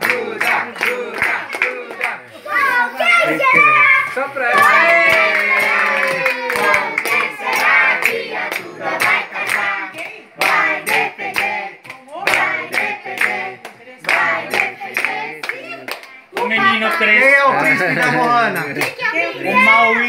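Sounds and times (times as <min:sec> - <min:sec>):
rhythmic hand clapping: 0:00.0 - 0:02.2, 0:04.6 - 0:16.7, 0:17.8 - 0:19.0
group singing: 0:00.0 - 0:02.8, 0:04.4 - 0:20.0.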